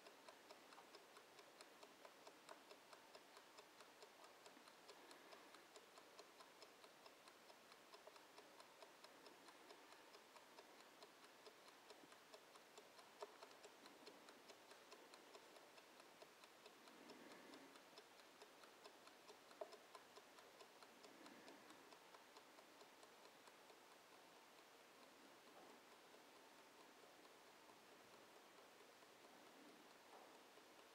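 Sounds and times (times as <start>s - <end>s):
kitchen timer ticking: 0.0s - 30.9s
sharp timer clicks: 0.0s - 30.9s.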